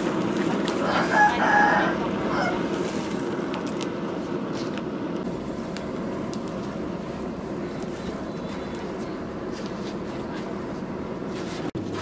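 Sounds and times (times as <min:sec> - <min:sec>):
coals crackling and popping: 0:00.0 - 0:11.7
air rushing into forge fire: 0:00.0 - 0:12.0
chicken calling: 0:00.8 - 0:02.7.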